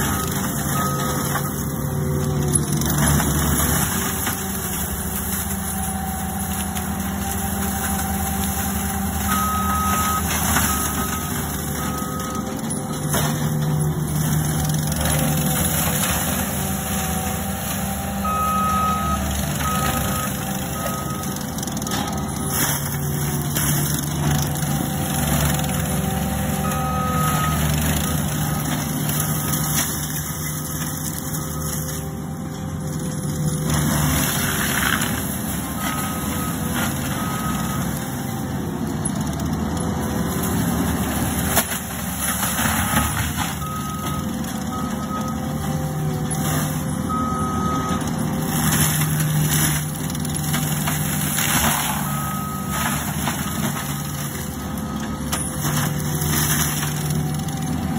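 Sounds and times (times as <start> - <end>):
mulcher grinding through brush: 0.0 - 57.9
backup alarm beeps: 0.1 - 1.7, 9.1 - 13.0, 18.2 - 22.5.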